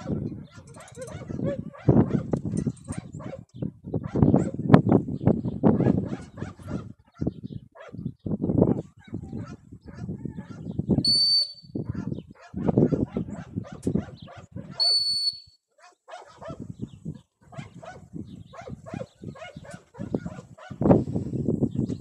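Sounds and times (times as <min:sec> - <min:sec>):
dog whistle blasts: 0:11.0 - 0:11.8, 0:14.8 - 0:15.6.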